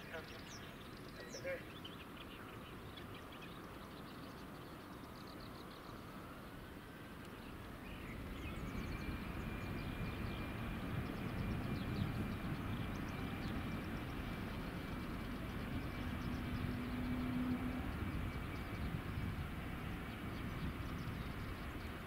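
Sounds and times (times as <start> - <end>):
low engine rumble: 0.0 - 22.0
jet engines whining: 6.1 - 22.0
bird chirps: 7.3 - 19.0.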